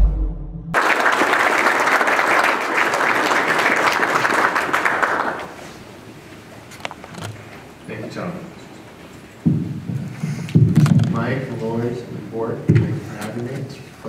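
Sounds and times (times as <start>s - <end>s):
audience applauding: 0.7s - 5.7s.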